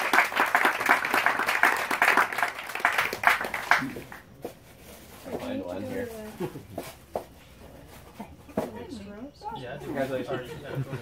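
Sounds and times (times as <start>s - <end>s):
small group applauding: 0.0s - 4.3s.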